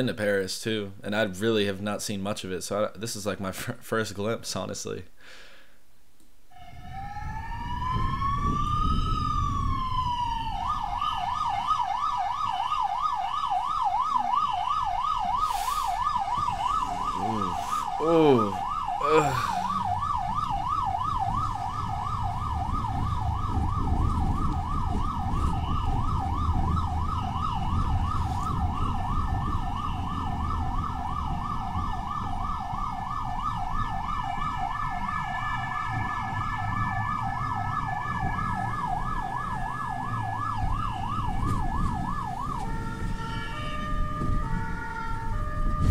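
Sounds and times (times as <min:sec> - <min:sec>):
emergency vehicle siren: 0:06.5 - 0:45.9
engine and road rumble: 0:06.6 - 0:45.9.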